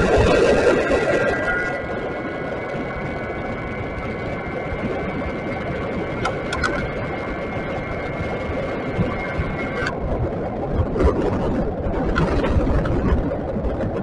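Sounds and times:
road and wind noise: 0.0s - 14.0s
sharp clicks: 6.2s - 6.9s.

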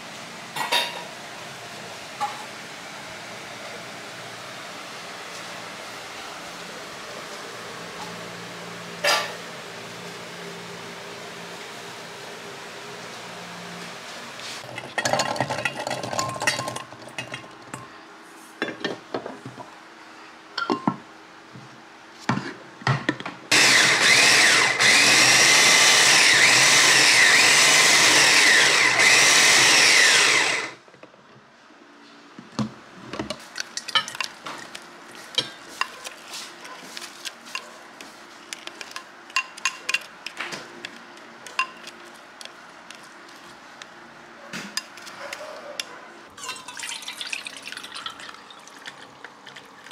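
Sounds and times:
clinks and knocks in steel bowl: 20.6s - 21.0s
electric food chopper running: 23.5s - 30.8s.

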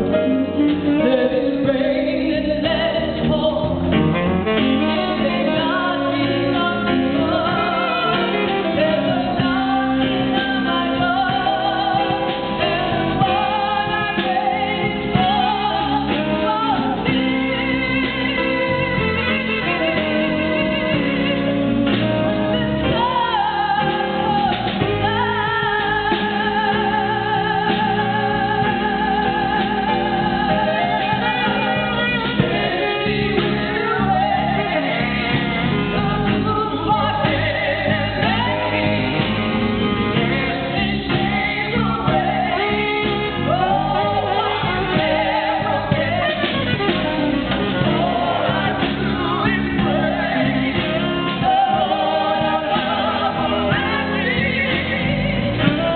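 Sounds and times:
live band playing blues: 0.0s - 55.9s
woman singing: 0.0s - 55.9s.

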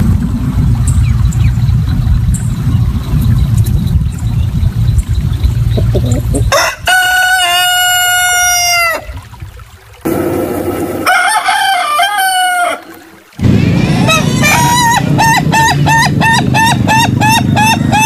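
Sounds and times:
low rumble: 0.0s - 6.6s, 13.4s - 18.0s
rooster crowing: 6.5s - 9.1s, 11.0s - 18.0s.

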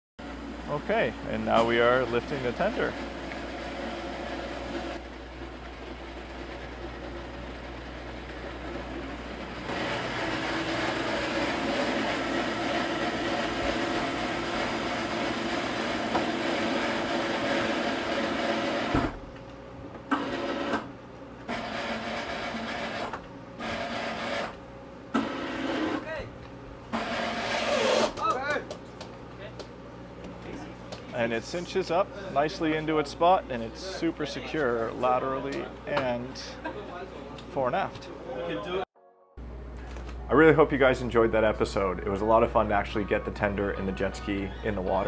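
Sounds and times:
lift motor whine: 0.2s - 26.2s.

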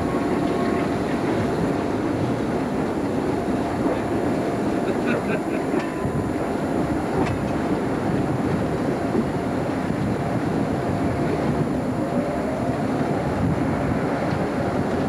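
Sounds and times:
train running noise: 0.0s - 15.0s.

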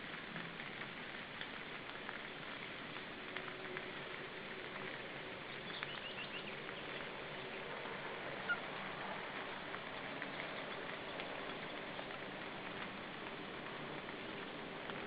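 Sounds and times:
steady hiss: 0.0s - 15.0s
bird chirping: 5.6s - 7.0s.

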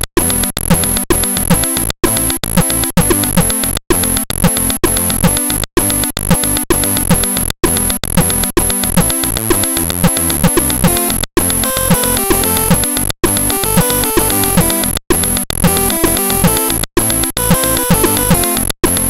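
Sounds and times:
chiptune music: 0.0s - 19.0s.

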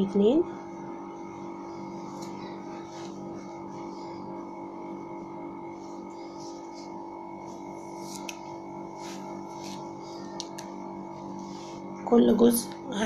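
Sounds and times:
hum of held tones: 0.0s - 13.0s
comb rustling through hair: 1.7s - 12.0s.

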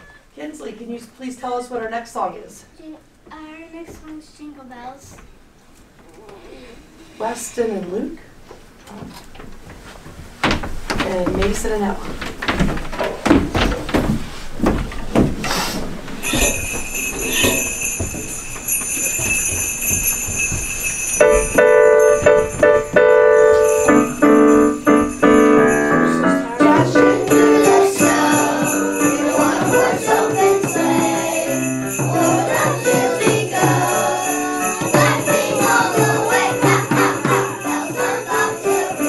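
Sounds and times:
jingle bells shaken: 16.2s - 39.0s
piano chords: 16.2s - 39.0s
children singing: 26.5s - 39.0s.

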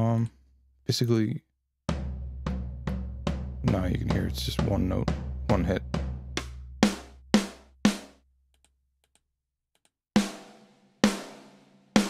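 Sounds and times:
tom drum hits: 1.9s - 8.0s.

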